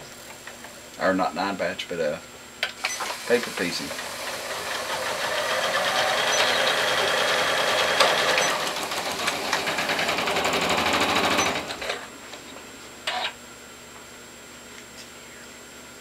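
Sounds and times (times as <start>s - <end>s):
sewing machine stitching: 3.0s - 12.1s.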